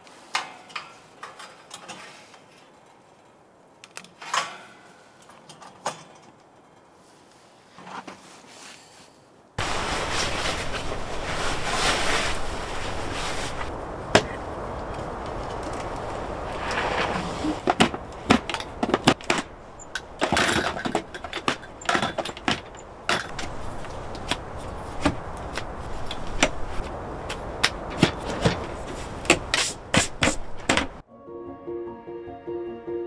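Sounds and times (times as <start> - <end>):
clicks and knocks of handling: 0.3 - 4.6, 17.6 - 31.0
wind noise: 9.6 - 31.0.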